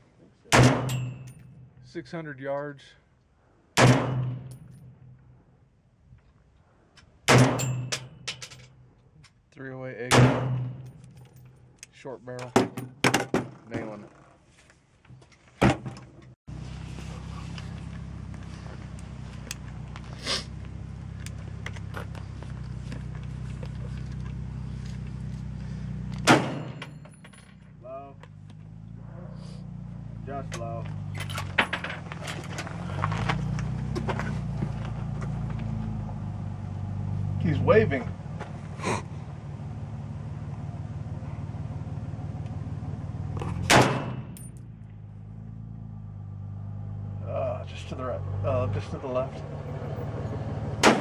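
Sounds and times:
rifle shot: 3.8s - 4.5s, 10.1s - 10.8s, 43.6s - 44.3s, 50.8s - 51.0s
engine idling hum: 16.0s - 51.0s.

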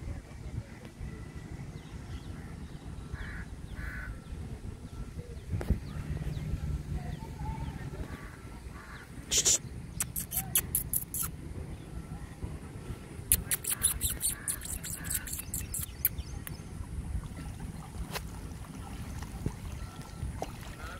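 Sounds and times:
shallow water: 0.0s - 9.9s, 11.3s - 20.9s
low rumble on microphone: 0.0s - 10.0s
sharp clicks: 9.4s - 11.3s, 13.3s - 16.6s.

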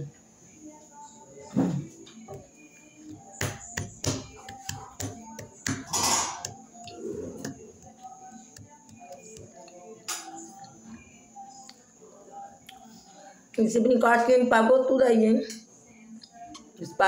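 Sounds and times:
faint background music: 0.0s - 17.0s.

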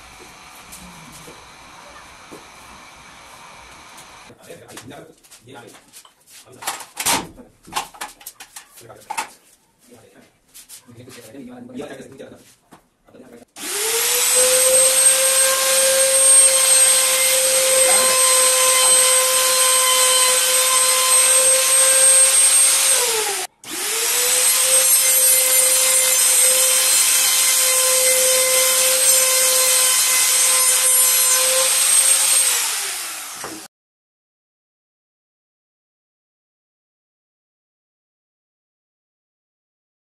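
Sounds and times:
router spinning and trimming: 13.6s - 33.7s.

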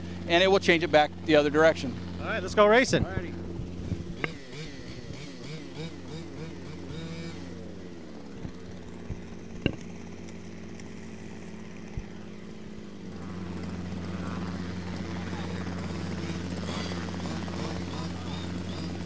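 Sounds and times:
constant low hum: 0.0s - 19.0s
model buggy engine revving: 0.0s - 19.0s
sharp knocks: 9.6s - 9.8s.

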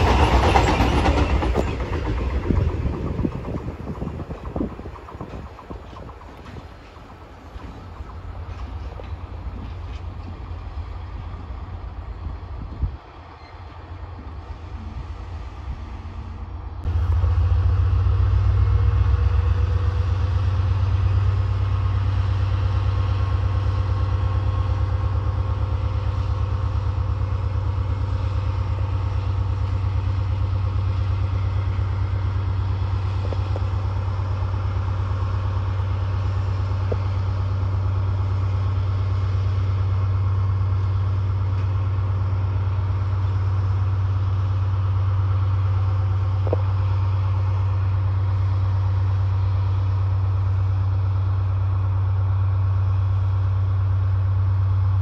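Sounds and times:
diesel locomotive engine running: 0.0s - 55.0s.

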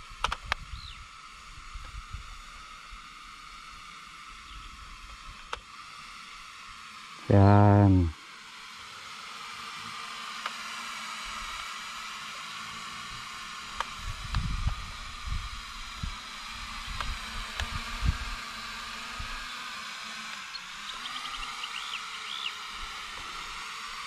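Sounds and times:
toy drone propellers whirring: 0.0s - 24.0s
wind rumbling on microphone: 14.0s - 18.4s.

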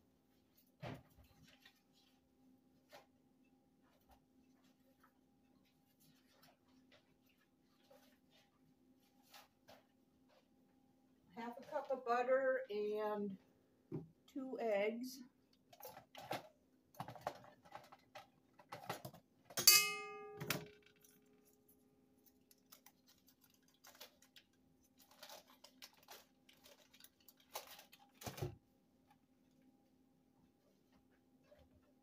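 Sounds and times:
metallic clink on steel bowl: 19.6s - 20.8s.

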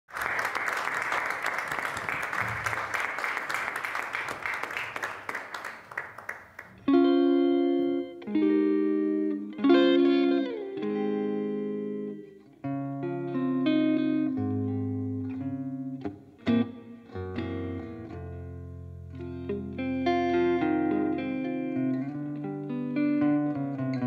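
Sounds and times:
electric guitar chords ringing: 6.8s - 24.0s.

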